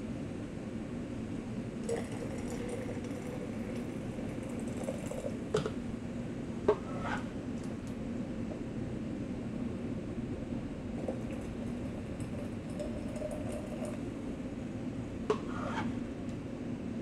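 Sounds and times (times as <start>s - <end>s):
steady low hum: 0.0s - 17.0s
water pouring into jar: 1.9s - 5.4s, 10.9s - 14.0s.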